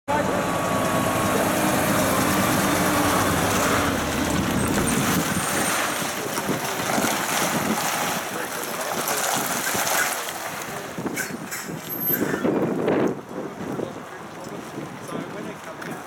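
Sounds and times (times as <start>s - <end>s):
diesel truck driving past: 0.1s - 6.4s.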